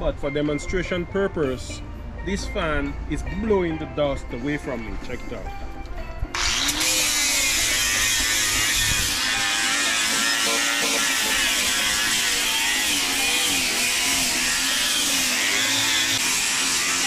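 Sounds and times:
electric rotary tool whining: 6.3s - 17.0s.

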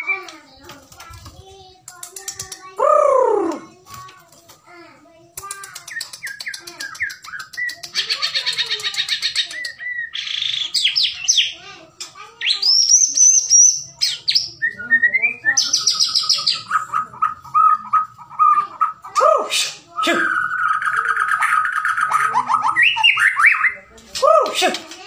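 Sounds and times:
songbird singing varied song: 12.4s - 18.5s.

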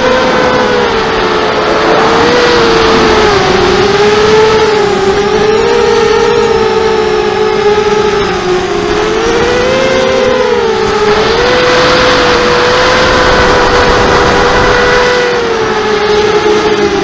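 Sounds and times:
drone motors whining: 0.0s - 17.0s
wind noise: 0.0s - 17.0s.

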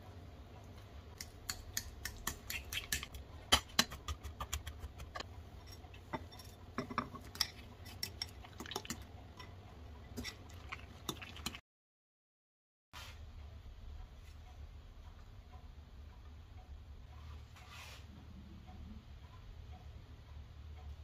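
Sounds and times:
metal spoon scraping glass bowl: 5.6s - 8.4s.

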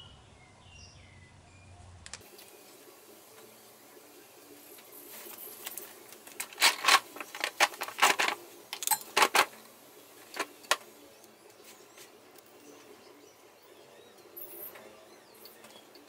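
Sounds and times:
metal hand tools clinking: 6.4s - 9.6s.

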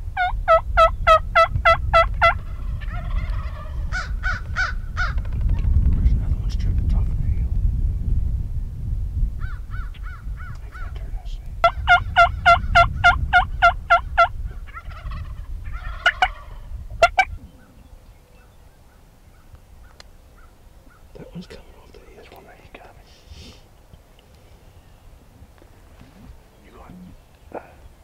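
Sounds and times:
wild turkey yelps: 0.2s - 5.2s, 11.6s - 17.8s
rattling gobble: 0.2s - 5.3s, 11.6s - 17.3s.

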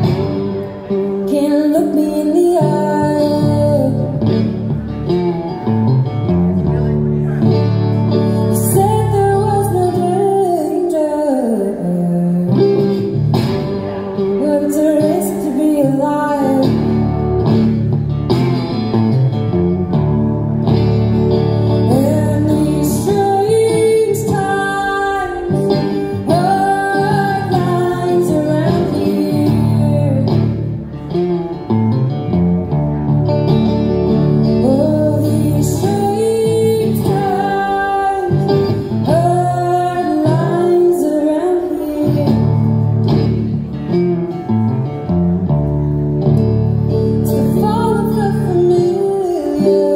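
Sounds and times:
resonator guitar: 0.0s - 49.9s
woman singing: 1.2s - 4.6s, 8.2s - 13.2s, 14.2s - 17.3s, 21.7s - 30.8s, 34.5s - 43.0s, 47.2s - 49.9s.

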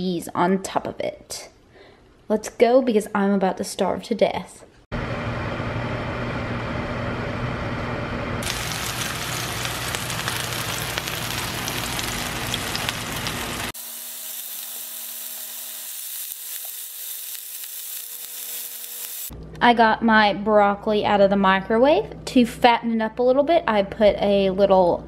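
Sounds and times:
microwave oven humming: 5.0s - 15.7s
chicken sizzling in a pan: 8.4s - 19.3s.

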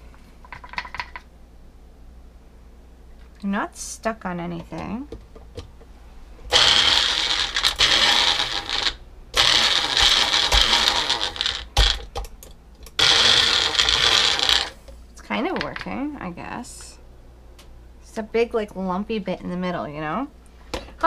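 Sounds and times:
blender motor whine: 6.5s - 12.1s, 13.0s - 14.8s.

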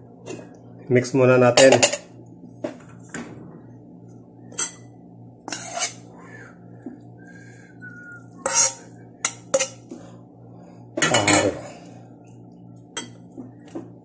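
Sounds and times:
utensil scraping a bowl: 5.4s - 6.1s, 8.3s - 10.1s.

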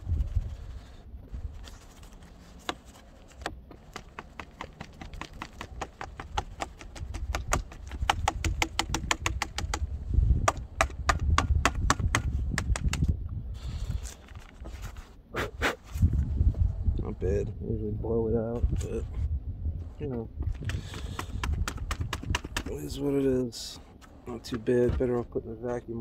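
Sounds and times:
plastic canister tapped and shaken: 2.6s - 13.1s, 20.4s - 22.8s
sharp clicks and taps: 3.4s - 13.1s, 20.4s - 22.7s.

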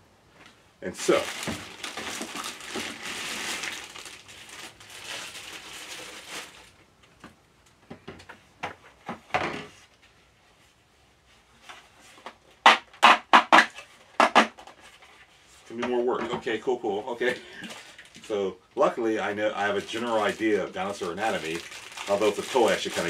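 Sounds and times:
plastic bag crinkling: 1.0s - 6.8s, 17.3s - 18.4s, 19.3s - 23.0s
hard plastic pieces handled: 1.0s - 7.2s, 19.6s - 23.0s.

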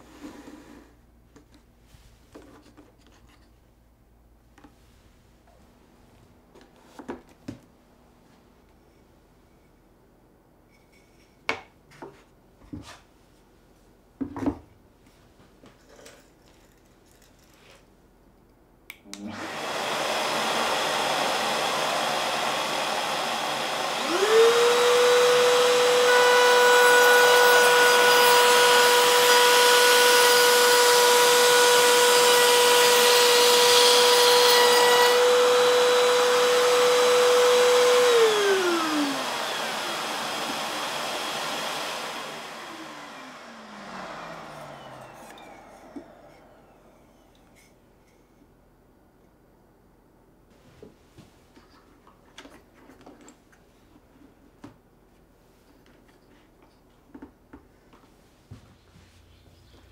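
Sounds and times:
vacuum running: 19.1s - 47.8s
router high whine: 19.3s - 47.7s.

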